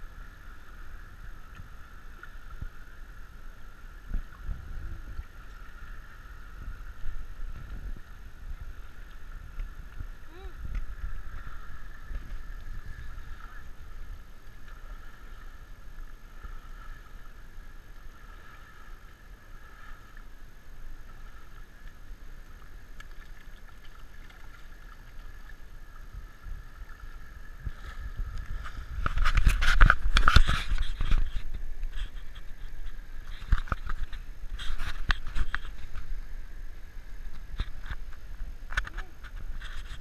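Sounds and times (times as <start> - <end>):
water sloshing from wading elephant: 0.5 - 36.5.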